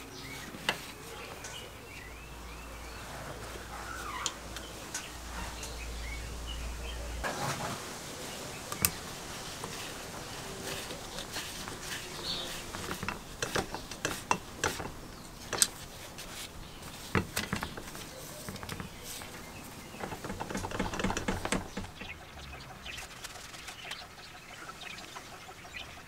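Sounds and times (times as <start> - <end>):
metal clicks and scrapes: 8.7 - 22.1.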